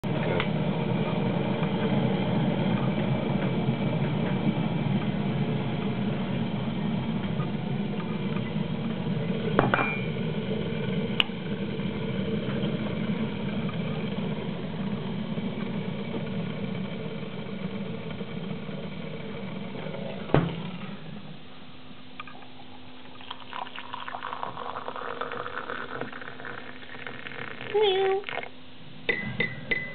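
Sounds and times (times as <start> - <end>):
kettle heating up: 0.1 - 29.9
water poured into cup: 22.2 - 28.5.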